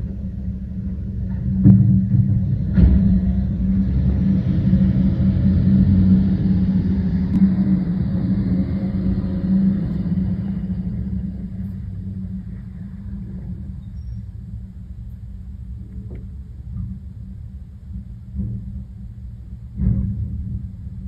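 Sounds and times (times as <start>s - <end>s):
truck engine droning: 0.0s - 21.0s.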